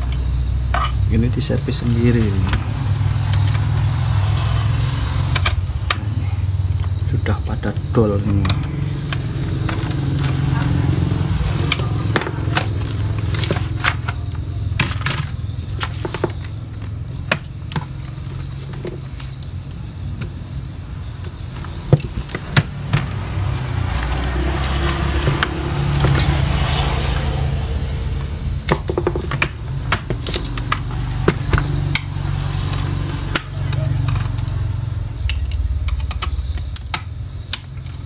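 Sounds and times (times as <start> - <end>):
plastic case clicks and knocks: 11.7 - 19.4, 28.6 - 32.1.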